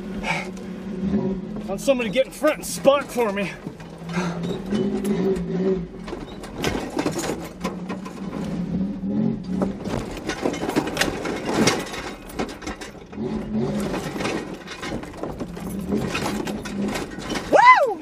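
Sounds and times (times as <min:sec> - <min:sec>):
truck engine at low revs: 0:00.0 - 0:18.0
tyres and body knocking on rock: 0:09.6 - 0:13.0.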